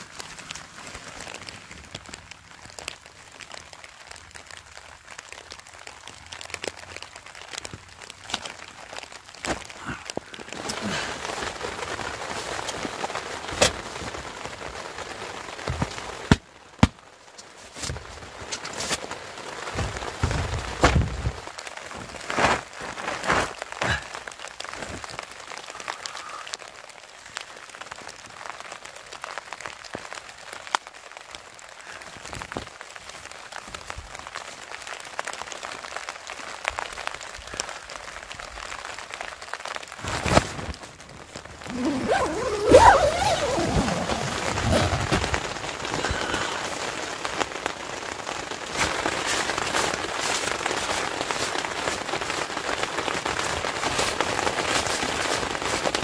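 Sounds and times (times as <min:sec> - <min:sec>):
tent fabric rustling: 0:00.0 - 0:02.9, 0:07.4 - 0:25.6, 0:40.0 - 0:56.0.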